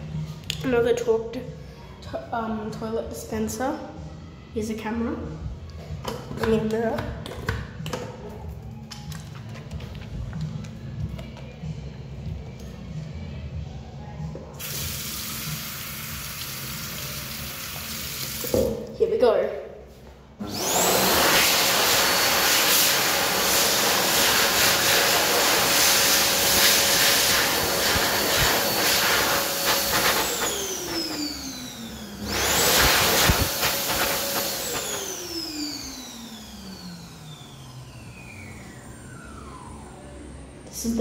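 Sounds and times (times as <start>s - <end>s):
hand dryer blowing: 14.6s - 18.5s, 20.4s - 39.6s
motor winding down whine: 29.4s - 40.7s.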